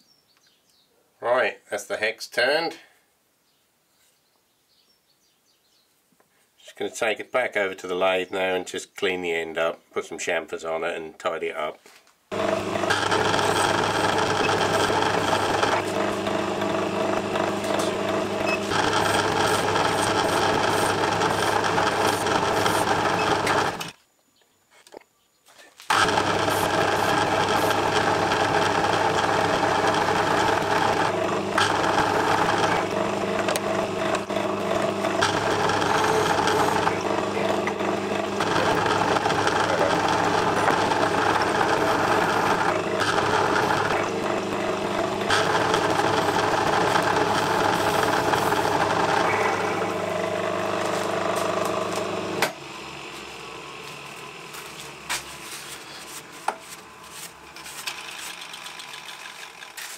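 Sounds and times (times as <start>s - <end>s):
metal lathe motor hum: 12.3s - 23.9s, 25.9s - 54.9s.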